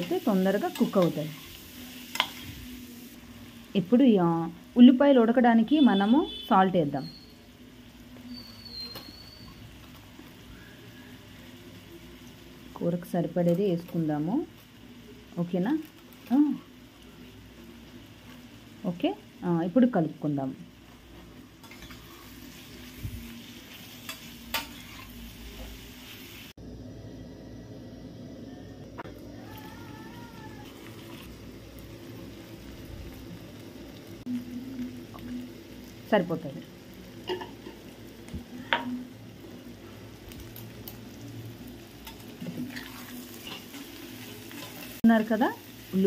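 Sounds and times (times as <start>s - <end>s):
food sizzling in a pan: 0.0s - 46.0s
spatula stirring in a pan: 21.6s - 25.2s, 30.4s - 31.6s, 42.0s - 45.0s.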